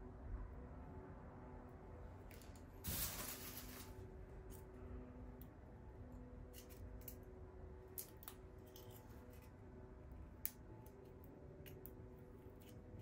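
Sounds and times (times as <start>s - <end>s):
low steady hum: 0.0s - 13.0s
crackling of papery seeds: 2.3s - 4.7s.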